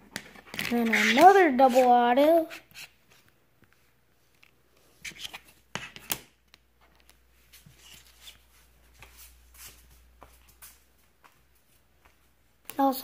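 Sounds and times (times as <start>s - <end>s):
cards rubbing: 0.6s - 1.9s.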